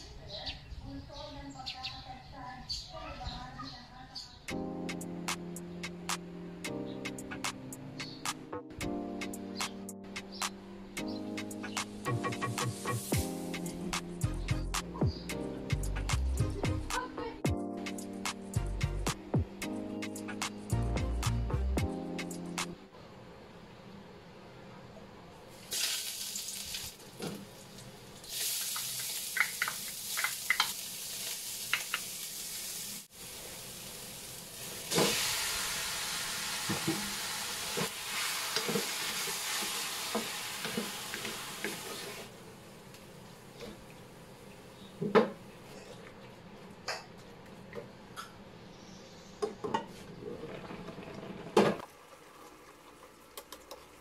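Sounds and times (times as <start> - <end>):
meat sizzling in hot oil: 25.6 - 42.3.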